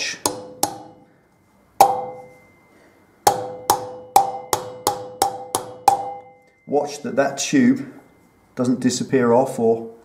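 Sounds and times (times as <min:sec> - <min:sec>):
hammer tapping metal: 0:00.0 - 0:01.1, 0:01.8 - 0:02.6, 0:03.2 - 0:06.6.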